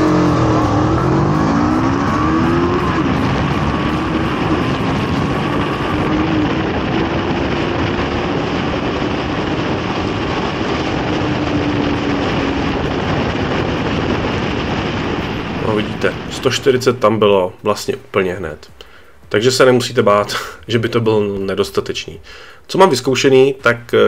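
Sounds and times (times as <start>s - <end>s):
motorcycle engine accelerating: 0.0s - 17.6s
wind rushing: 0.0s - 20.5s.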